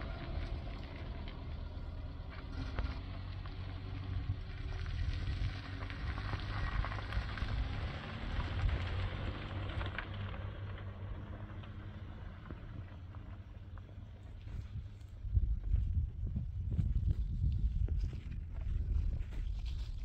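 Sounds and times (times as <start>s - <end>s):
gritty crackle: 0.0s - 15.8s, 16.7s - 20.0s
vehicle driving rumble: 0.0s - 20.0s.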